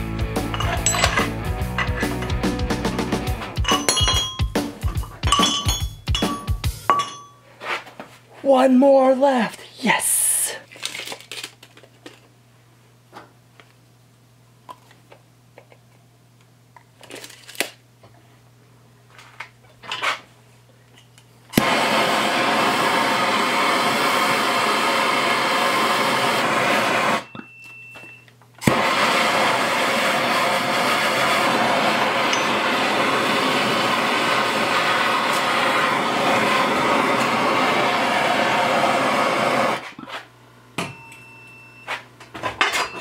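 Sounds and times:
gas torch flame hissing: 21.5s - 27.3s, 28.6s - 40.0s.

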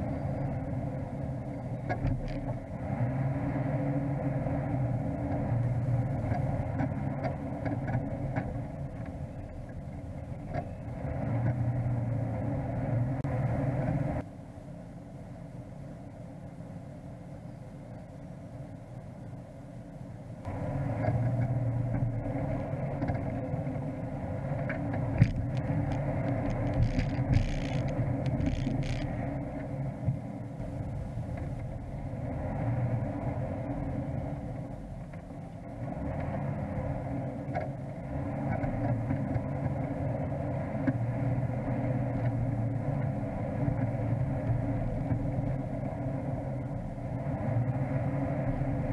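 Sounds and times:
off-road vehicle engine running: 0.0s - 48.9s
vehicle knocking and rattling: 1.6s - 2.7s, 5.2s - 11.7s, 24.6s - 32.1s.

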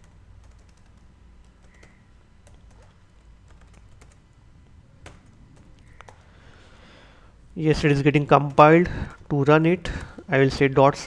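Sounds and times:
faint keyboard typing: 0.0s - 6.9s, 8.2s - 10.3s.

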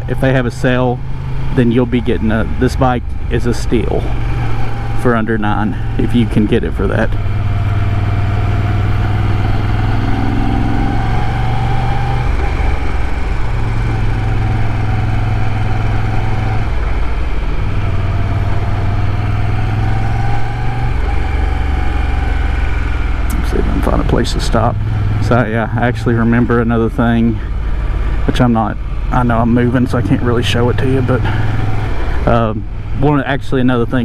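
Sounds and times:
motorcycle engine running: 0.0s - 34.0s.

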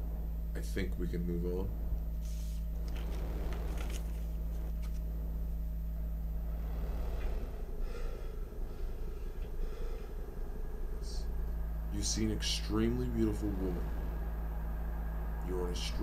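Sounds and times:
steady low hum: 0.0s - 16.0s
man breathing: 2.2s - 3.5s, 6.3s - 12.0s.

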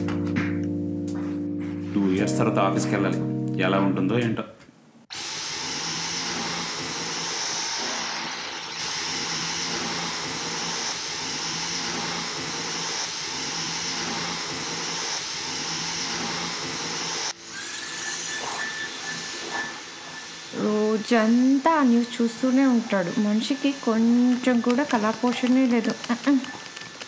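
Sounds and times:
cordless vacuum running: 5.1s - 17.5s, 19.4s - 27.0s.

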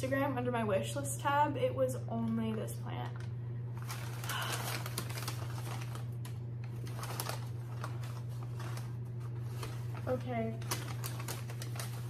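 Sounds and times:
steady low hum: 0.0s - 12.0s
wrapping paper crinkling: 3.0s - 12.0s.

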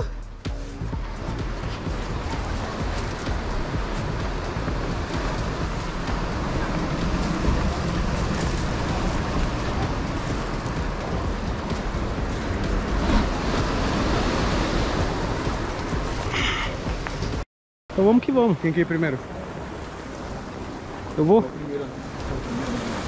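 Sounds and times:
deep rumble: 0.0s - 17.4s
sea surf on rocks: 1.0s - 17.4s, 18.0s - 23.0s.

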